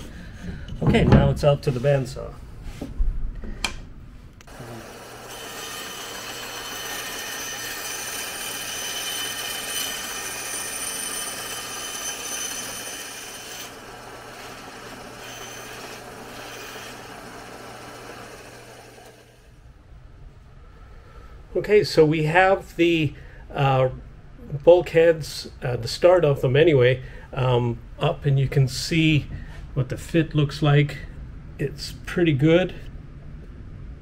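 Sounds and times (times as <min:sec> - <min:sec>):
bandsaw motor hum: 0:04.4 - 0:19.6.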